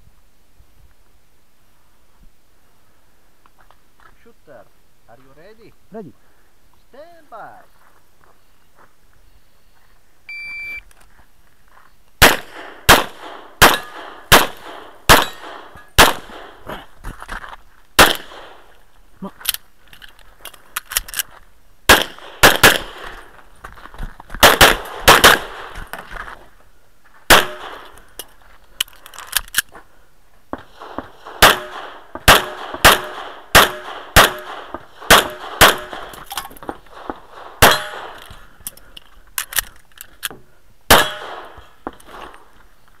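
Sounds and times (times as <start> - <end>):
pistol shots: 12.2 - 16.7, 18.0 - 18.7, 21.9 - 23.3, 24.4 - 26.0, 27.3 - 28.0, 30.6 - 38.2, 40.9 - 41.6.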